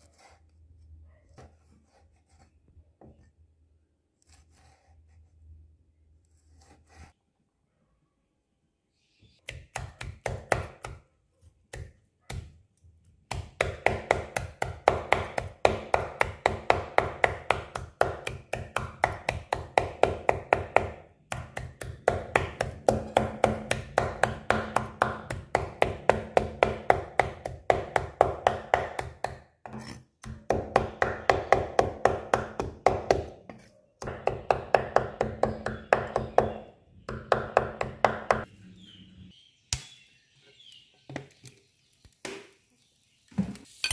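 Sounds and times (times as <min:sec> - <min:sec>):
cleaver chopping on wooden board: 0:13.3 - 0:38.5.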